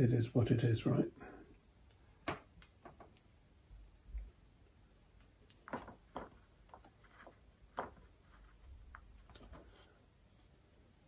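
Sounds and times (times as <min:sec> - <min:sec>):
small clicks and taps: 0:01.5 - 0:03.4.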